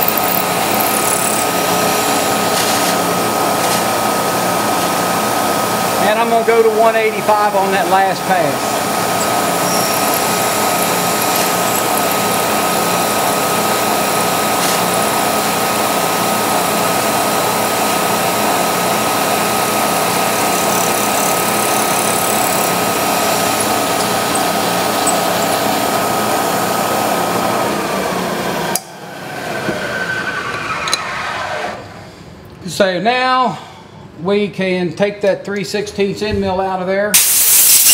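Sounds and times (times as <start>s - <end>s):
milling machine whining: 0.0s - 28.8s.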